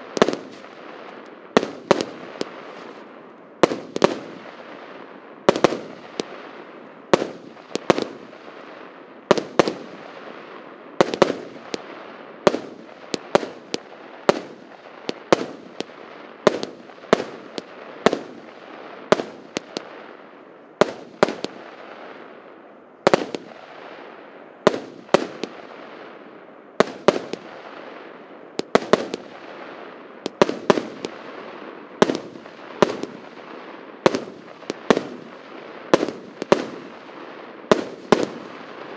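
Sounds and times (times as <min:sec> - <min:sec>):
fireworks hiss: 0:00.0 - 0:04.9
fireworks bangs: 0:00.0 - 0:22.3, 0:23.0 - 0:38.9.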